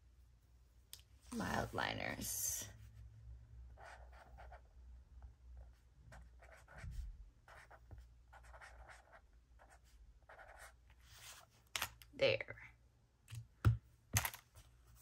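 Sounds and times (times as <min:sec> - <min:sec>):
marker scratching on paper: 0:03.7 - 0:04.7, 0:05.6 - 0:11.5.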